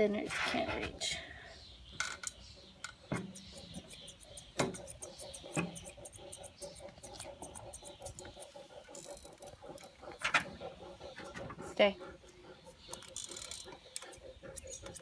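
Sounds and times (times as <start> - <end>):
scissors snipping fur: 3.2 - 9.9.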